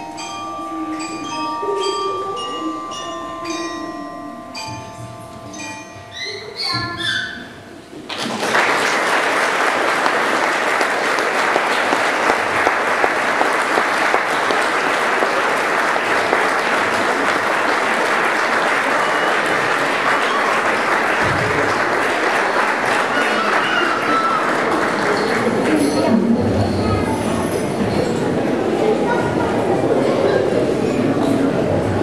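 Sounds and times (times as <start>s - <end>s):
audience applauding: 8.1s - 26.1s.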